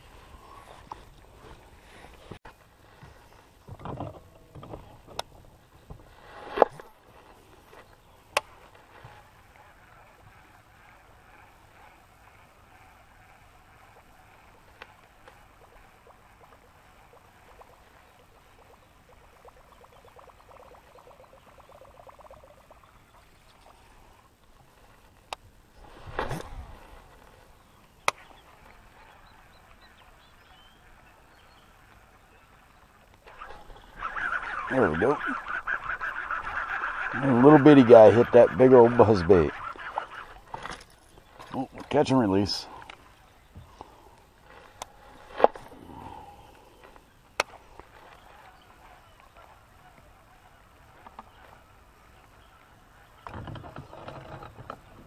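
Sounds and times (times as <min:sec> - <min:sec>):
fishing rod rustles and knocks: 0:00.7 - 0:09.4, 0:40.0 - 0:42.1, 0:42.8 - 0:45.7, 0:53.2 - 0:55.0
fishing reel spool whirring: 0:08.5 - 0:23.5, 0:28.5 - 0:41.7.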